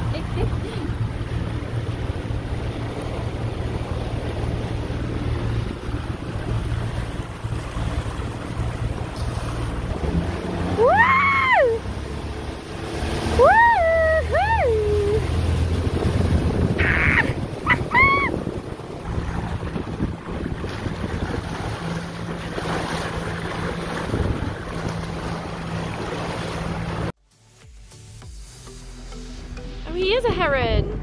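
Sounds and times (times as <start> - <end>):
outboard motor running: 0.0 - 27.2
rushing water: 0.0 - 27.2
wind: 0.0 - 31.0
high sliding whoops: 10.7 - 11.9, 13.3 - 15.3, 16.8 - 18.4.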